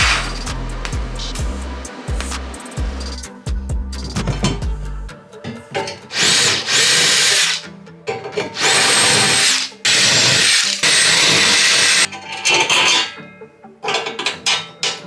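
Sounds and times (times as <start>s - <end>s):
cordless drill drilling wood: 6.1s - 7.6s, 8.6s - 12.1s.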